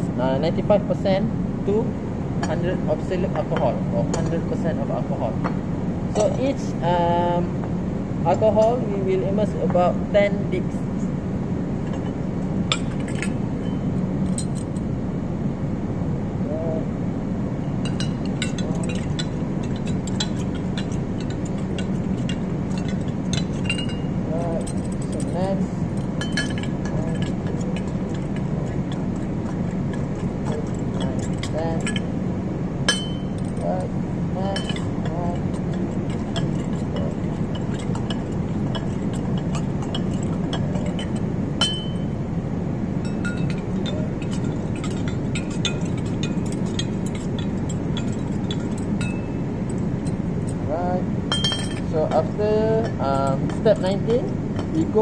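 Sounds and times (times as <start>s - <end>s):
steady low hum: 0.0s - 55.0s
slide holder clinking glass jar: 17.8s - 32.1s, 34.4s - 42.2s, 43.0s - 50.2s, 51.3s - 54.9s.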